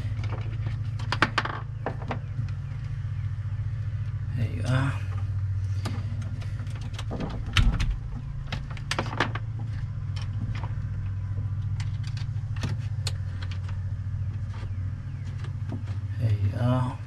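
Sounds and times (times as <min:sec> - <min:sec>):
steady low hum: 0:00.0 - 0:17.0
cable and metal terminal clicks: 0:04.0 - 0:16.0.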